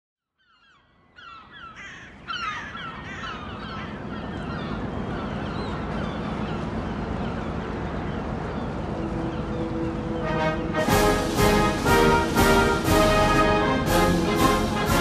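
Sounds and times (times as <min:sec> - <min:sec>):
flock of birds calling: 0:00.4 - 0:15.0
low harbour rumble: 0:01.9 - 0:15.0.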